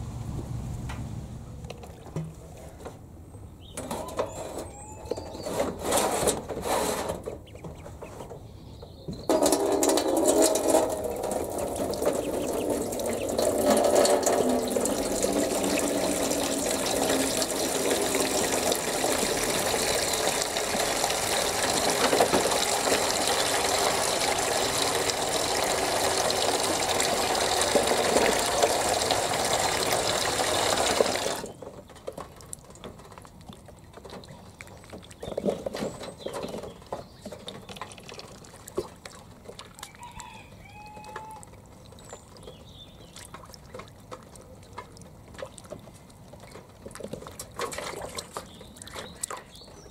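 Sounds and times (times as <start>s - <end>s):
ducklings splashing in water: 4.6s - 49.9s
water running into a dish: 9.3s - 31.5s.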